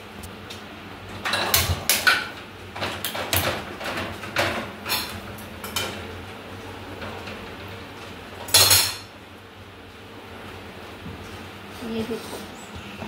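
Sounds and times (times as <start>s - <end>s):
steel kitchen utensils clattering: 1.1s - 6.2s, 6.9s - 9.1s.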